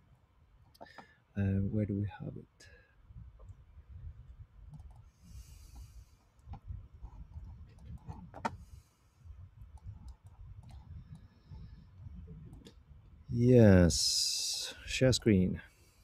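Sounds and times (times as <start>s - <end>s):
computer mouse clicks: 4.7s - 5.1s, 9.7s - 11.3s.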